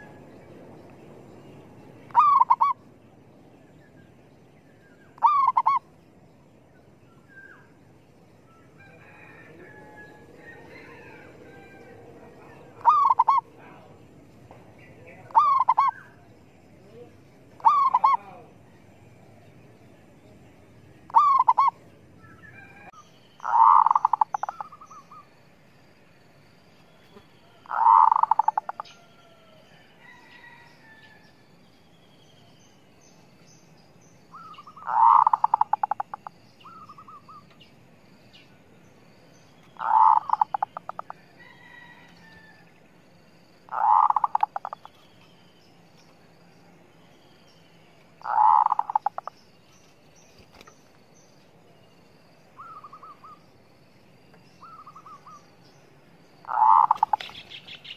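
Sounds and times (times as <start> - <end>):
dove cooing: 2.1 - 2.8, 5.2 - 5.8, 12.4 - 13.8, 15.2 - 16.2, 17.6 - 18.5, 21.1 - 21.8, 22.6 - 25.2, 27.6 - 29.3, 34.4 - 37.4, 39.8 - 41.9, 43.7 - 44.9, 48.2 - 49.3, 56.4 - 57.5.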